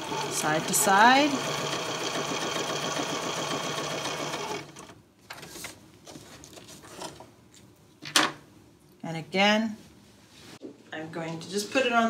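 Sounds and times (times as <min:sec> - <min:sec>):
sewing machine stitching: 0:00.0 - 0:05.0.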